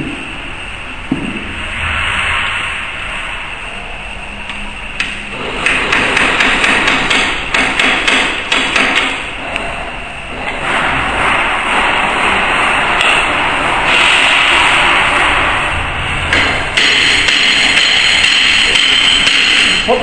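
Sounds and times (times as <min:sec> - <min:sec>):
hammer tapping metal: 0:16.3 - 0:19.9.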